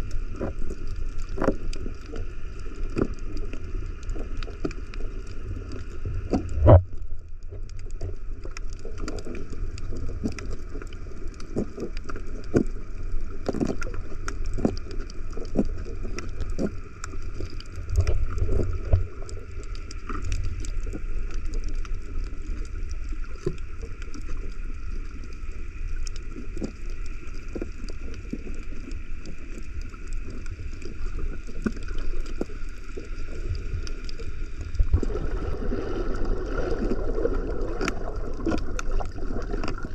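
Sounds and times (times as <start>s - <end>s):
faint steady hum: 0.0s - 39.9s
muffled underwater rumble: 0.0s - 39.9s.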